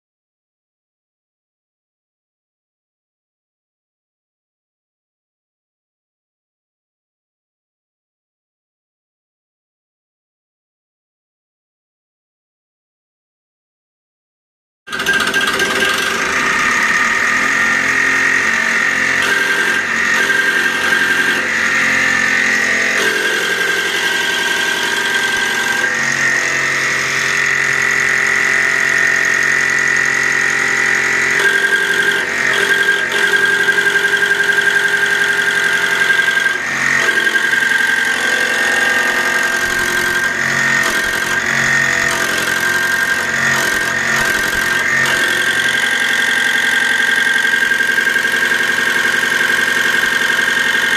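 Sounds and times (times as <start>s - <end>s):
fuel injection pump whining: 14.9s - 50.9s.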